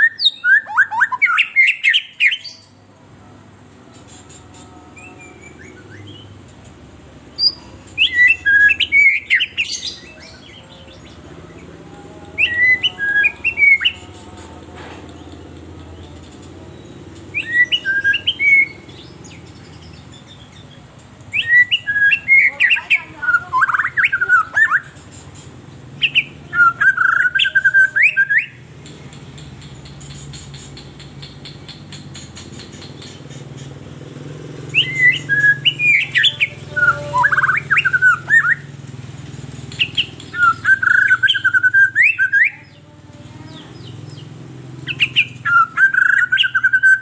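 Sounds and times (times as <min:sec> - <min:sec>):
bird singing whistled notes: 0:00.0 - 0:02.7, 0:07.3 - 0:11.2, 0:12.4 - 0:14.1, 0:16.7 - 0:20.7, 0:21.3 - 0:24.9, 0:26.0 - 0:28.6, 0:34.7 - 0:38.8, 0:39.8 - 0:42.7, 0:43.7 - 0:47.0.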